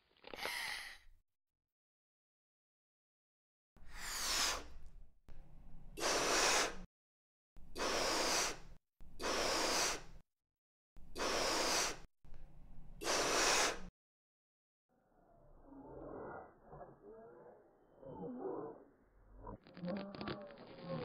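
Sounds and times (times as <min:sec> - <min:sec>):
person breathing into balloon: 0:00.3 - 0:01.1, 0:03.8 - 0:04.9, 0:06.0 - 0:06.9, 0:07.8 - 0:10.2, 0:11.1 - 0:12.1, 0:13.0 - 0:13.9.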